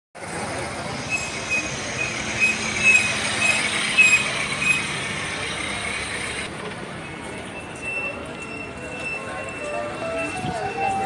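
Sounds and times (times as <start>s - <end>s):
street traffic: 0.2s - 11.0s
short high-pitched squeaks: 1.0s - 5.0s.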